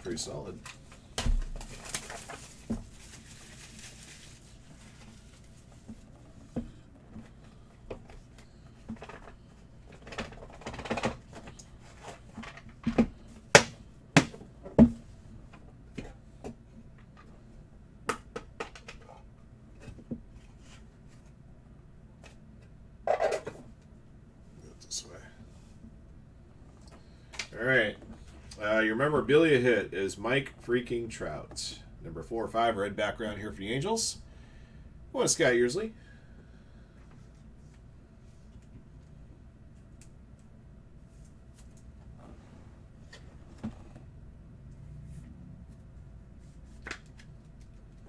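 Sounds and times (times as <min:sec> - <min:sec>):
wrapping crinkling as torn open: 0:01.4 - 0:04.6.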